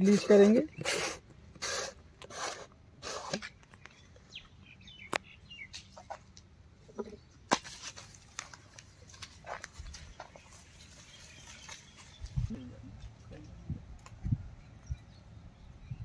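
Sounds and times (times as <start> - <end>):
crunching rustles on dry leaves: 7.5 - 12.5.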